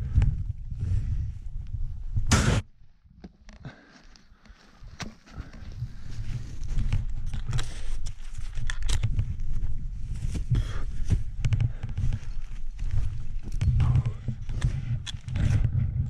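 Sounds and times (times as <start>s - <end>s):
heavy low rumble: 9.3s - 16.0s.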